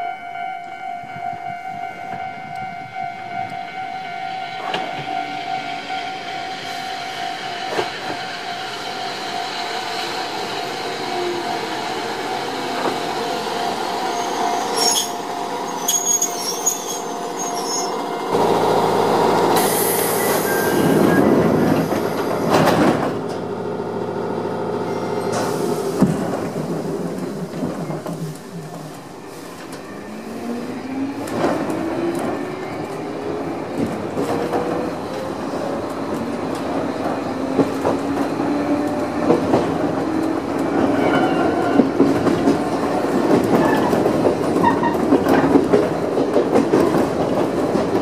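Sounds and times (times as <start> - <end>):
train cab noise: 0.0 - 48.0
electric train braking: 4.5 - 23.0
high brake squeals: 14.1 - 18.0, 19.8 - 21.9.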